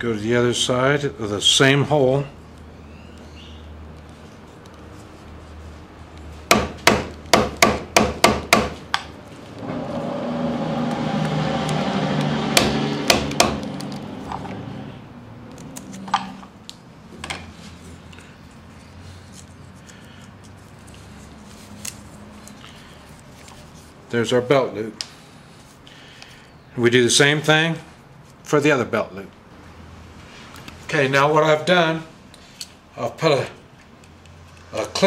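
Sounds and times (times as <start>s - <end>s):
hammer striking chisel: 6.5s - 9.1s, 12.5s - 13.7s
loud steady noise: 9.6s - 15.0s.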